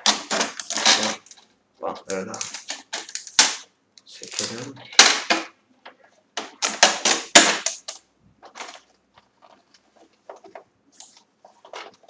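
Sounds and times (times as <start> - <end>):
hands handling plastic packaging: 0.0 - 12.0.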